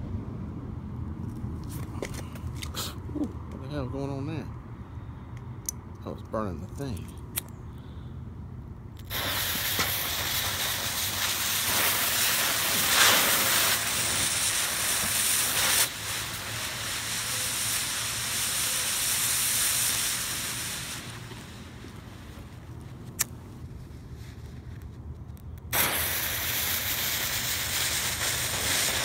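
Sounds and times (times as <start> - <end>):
smoke bombs hissing: 9.0 - 22.7, 25.7 - 29.0.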